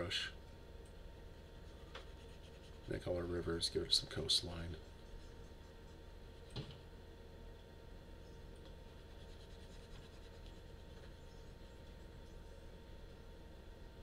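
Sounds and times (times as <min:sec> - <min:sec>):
mouse scratching across desk: 0:01.6 - 0:03.1, 0:08.7 - 0:11.2.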